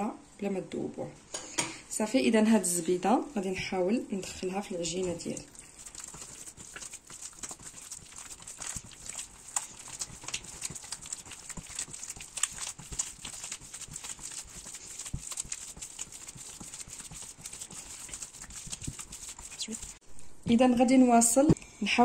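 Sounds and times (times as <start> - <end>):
dough being kneaded by hand: 3.5 - 20.0.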